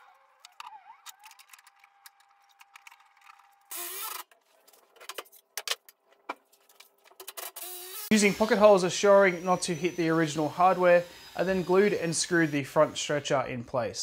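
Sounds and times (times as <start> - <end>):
cordless drill running: 3.7 - 4.3, 7.4 - 13.5.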